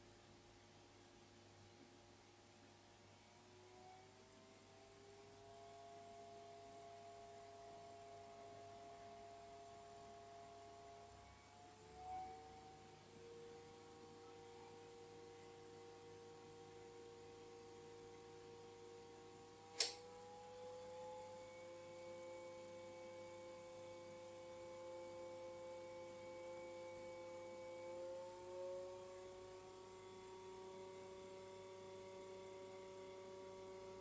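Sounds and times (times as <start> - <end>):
cooler pump whine: 3.5 - 34.0
sharp click: 19.7 - 20.1.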